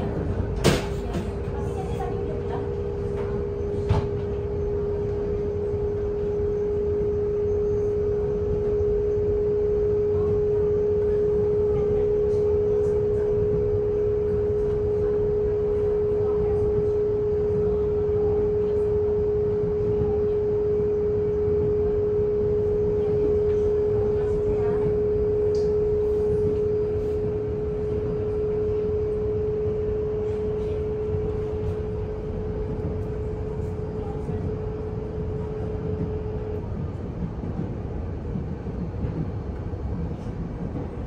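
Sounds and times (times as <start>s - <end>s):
train interior rumble and hum: 0.0s - 41.0s.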